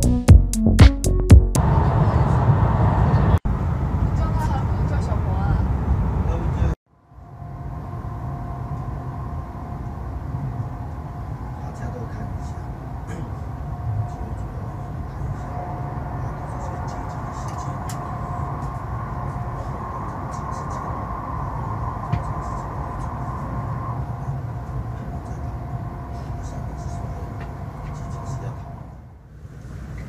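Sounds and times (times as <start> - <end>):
train cabin low rumble: 1.4 - 30.0
faint even whine: 6.9 - 29.0.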